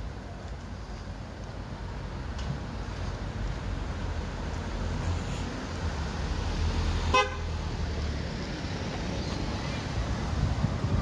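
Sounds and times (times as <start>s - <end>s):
car horn toot: 7.1s - 7.5s.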